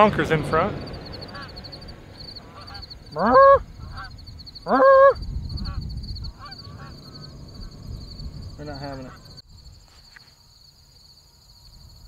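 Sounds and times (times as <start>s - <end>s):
geese honking: 0.3s - 7.8s.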